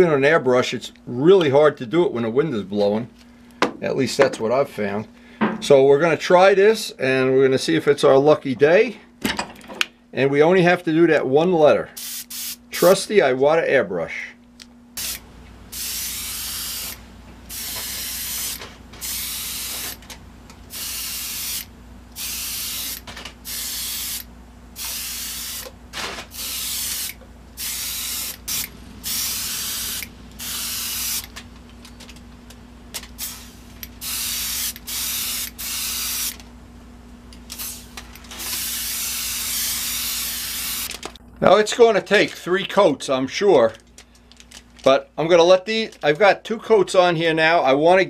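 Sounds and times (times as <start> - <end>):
airbrush spraying hiss: 15.0 - 20.0, 20.7 - 25.7, 26.4 - 31.3, 33.2 - 36.4, 37.6 - 40.9.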